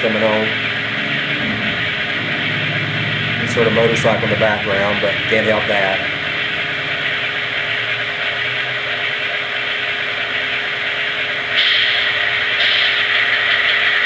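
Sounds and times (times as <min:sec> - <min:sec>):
air pumps running: 0:00.0 - 0:14.0
model diesel engine sound idling: 0:00.0 - 0:14.0
loud hiss: 0:11.5 - 0:14.0.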